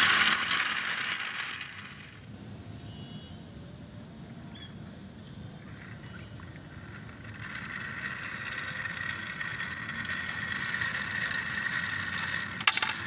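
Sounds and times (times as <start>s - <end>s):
toy train running: 0.0s - 2.3s, 5.5s - 13.0s.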